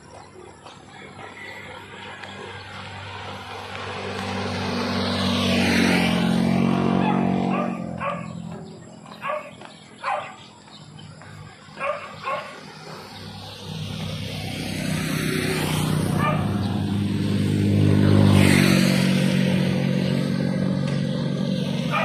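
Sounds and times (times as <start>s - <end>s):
motor scooter passing: 0.0s - 22.0s
vehicle approaching: 0.0s - 22.0s
dog barking: 7.0s - 8.4s, 9.2s - 10.5s, 11.8s - 12.6s, 16.2s - 16.6s.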